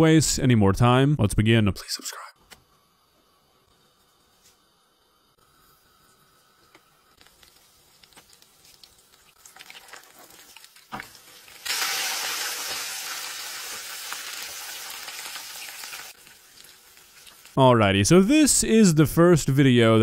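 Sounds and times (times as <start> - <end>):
chips sizzling in oil: 5.5 - 17.6
hot oil crackling in a pan: 5.5 - 17.6.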